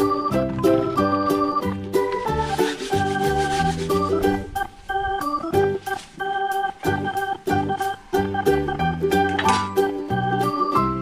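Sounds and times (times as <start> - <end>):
background music with bass line: 6.8 - 11.0.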